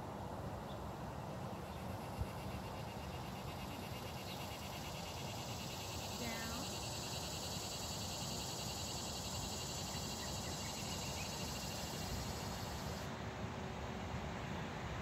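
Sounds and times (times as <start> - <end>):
insects chirping: 1.5 - 13.1.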